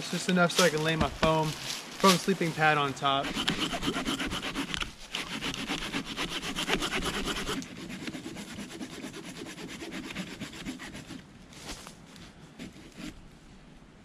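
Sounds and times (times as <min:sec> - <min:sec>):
hand saw cutting wood: 0:03.2 - 0:11.2.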